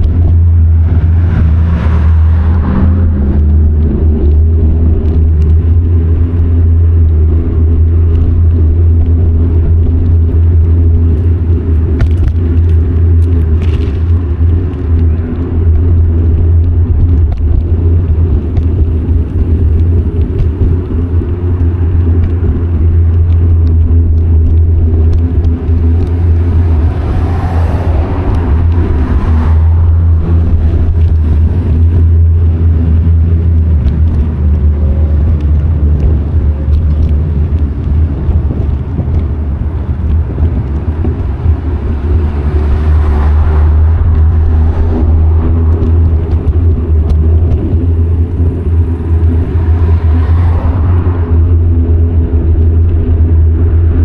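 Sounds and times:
car passing: 0.0s - 7.6s, 25.1s - 54.0s
wind and road noise: 0.0s - 54.0s.

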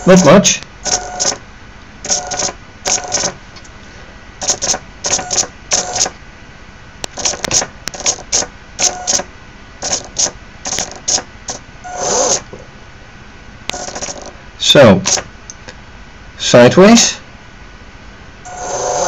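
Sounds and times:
motor whirring bursts: 0.8s - 1.4s, 9.8s - 12.5s, 18.5s - 19.0s.

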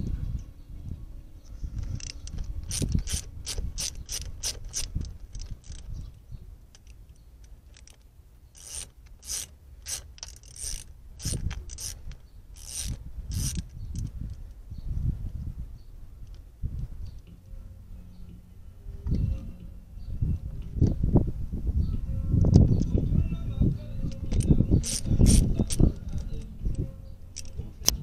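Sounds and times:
socket ratchet clicking: 1.8s - 6.0s, 6.8s - 14.5s, 24.0s - 28.0s.

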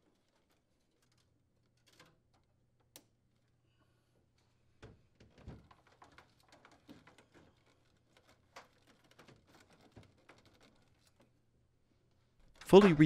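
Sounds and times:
faint clicks and rustles of wiring: 0.0s - 13.0s.

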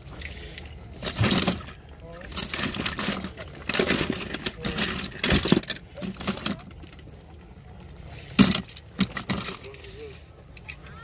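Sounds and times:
toy cars clattering in plastic tub: 1.0s - 7.1s, 8.2s - 10.0s.

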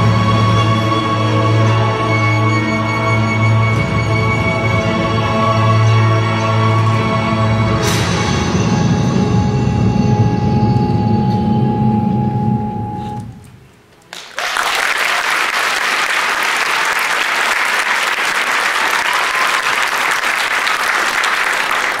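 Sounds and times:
audience applause: 14.1s - 22.0s.

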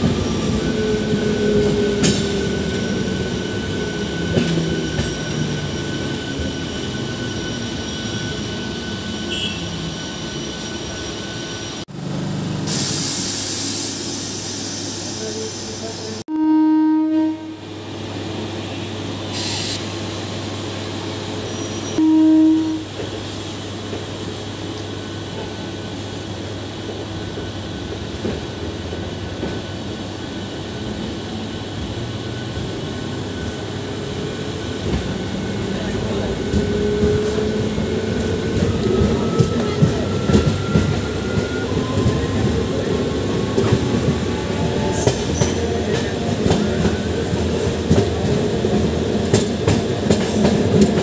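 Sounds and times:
train horn blasts: 9.3s - 9.7s, 16.3s - 17.7s, 22.0s - 23.0s.

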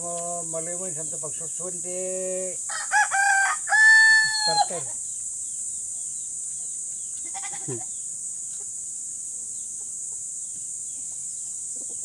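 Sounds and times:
goat bleating: 7.2s - 8.0s.

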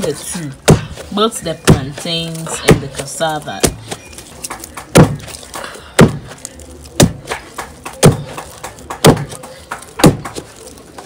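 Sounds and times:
pestle thudding in wooden mortar: 0.0s - 10.6s.

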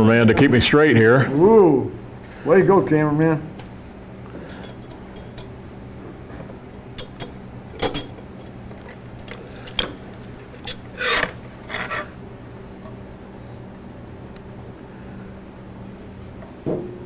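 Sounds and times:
metal scraping: 9.7s - 12.2s.

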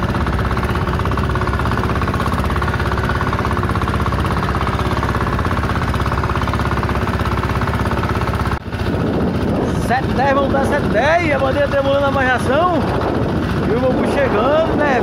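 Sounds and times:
boat engine chugging: 0.0s - 15.0s.

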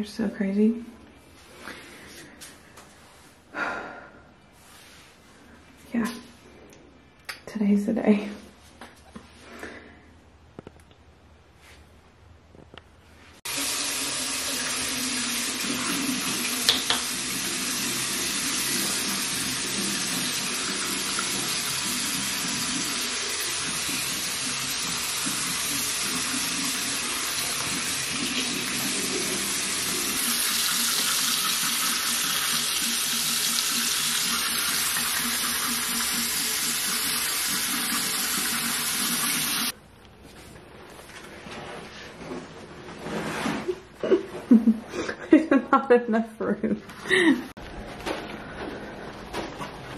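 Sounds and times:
sink tap running: 13.5s - 39.7s.

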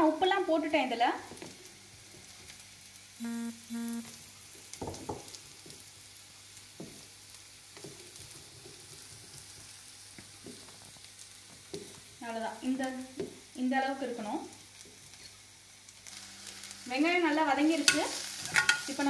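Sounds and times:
faint sizzle of frying: 0.0s - 19.0s
short steady tones: 3.2s - 4.2s.

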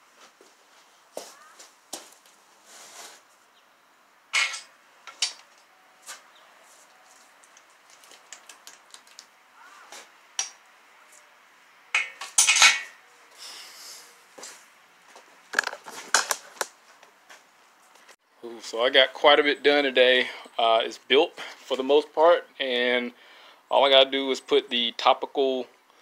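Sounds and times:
metal tools clinking and clattering: 4.4s - 5.5s, 12.0s - 13.0s.

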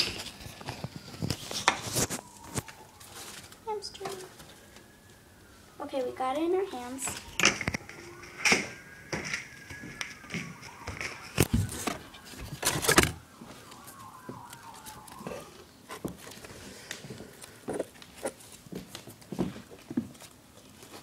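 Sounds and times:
faint high gliding tone: 2.3s - 16.1s.

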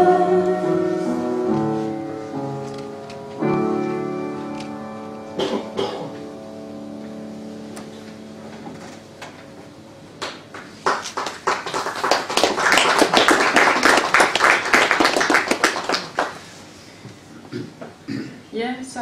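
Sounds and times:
piano chord: 0.0s - 10.5s
audience applauding: 10.2s - 16.5s.

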